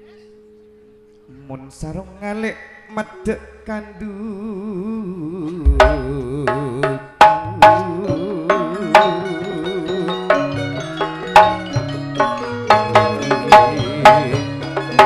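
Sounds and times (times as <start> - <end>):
deep drum stroke: 5.7 - 7.0
ringing struck percussion: 5.7 - 9.4.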